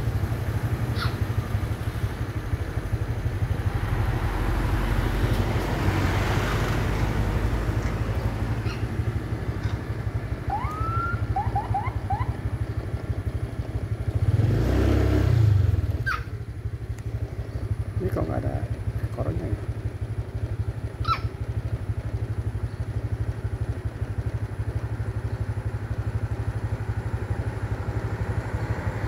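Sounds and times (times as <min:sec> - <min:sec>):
motorcycle engine idling: 0:00.0 - 0:29.0
short rising chirps: 0:10.5 - 0:12.4.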